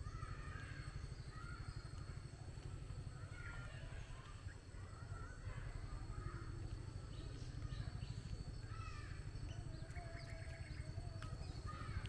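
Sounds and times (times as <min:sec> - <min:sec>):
steady low rumble: 0:00.0 - 0:12.0
birds chirping and whistling: 0:06.4 - 0:12.0.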